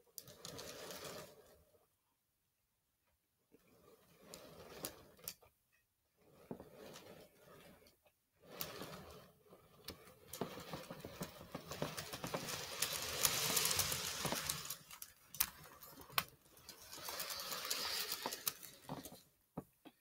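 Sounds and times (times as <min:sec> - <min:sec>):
model train wheels clicking on rails: 0:00.2 - 0:01.6, 0:03.7 - 0:05.4, 0:06.3 - 0:19.4
steady rushing hiss: 0:11.7 - 0:15.1, 0:16.6 - 0:19.1.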